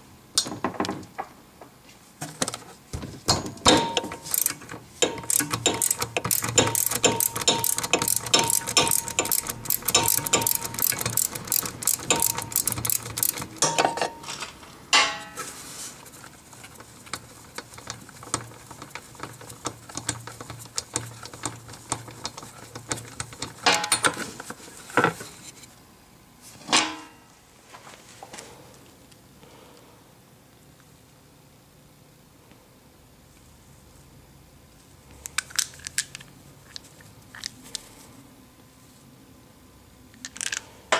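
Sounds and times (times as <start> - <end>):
metal clinks and knocks: 3.3 - 15.4
ratchet clicking: 4.0 - 13.7.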